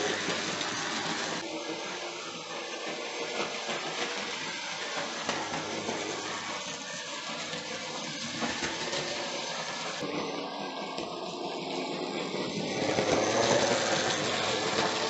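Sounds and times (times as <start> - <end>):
model train motor whirr: 0.0 - 15.0
wheels clicking over rails: 0.0 - 15.0.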